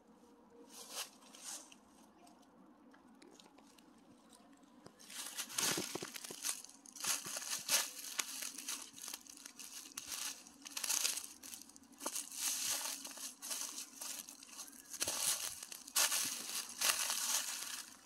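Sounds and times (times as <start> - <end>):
footsteps on dry leaves: 5.0 - 18.0.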